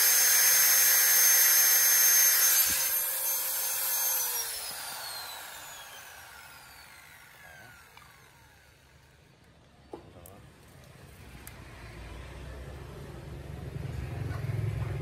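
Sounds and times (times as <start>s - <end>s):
angle grinder grinding steel: 0.0s - 8.8s
grinder disc spinning down: 0.0s - 9.2s.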